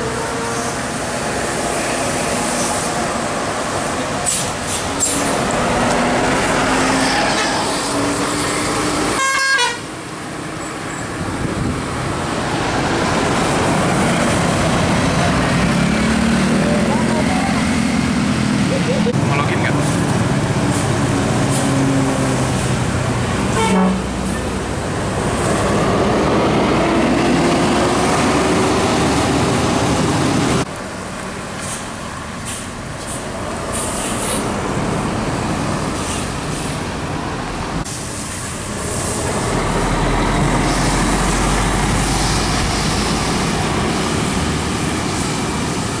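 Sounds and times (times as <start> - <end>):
vehicles driving past: 0.0 - 46.0
vehicle horn toot: 9.2 - 9.9, 23.5 - 24.1.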